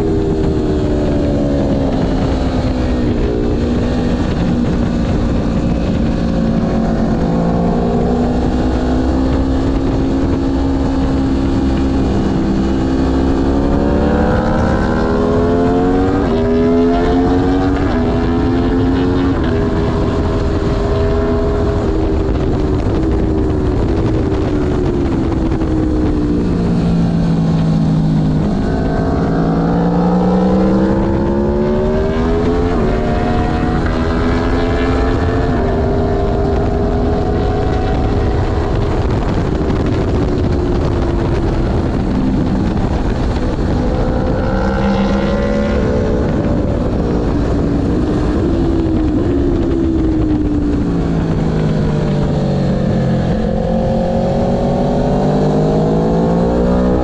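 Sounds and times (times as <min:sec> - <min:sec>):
motorcycle engine at full throttle: 0:00.0 - 0:57.0.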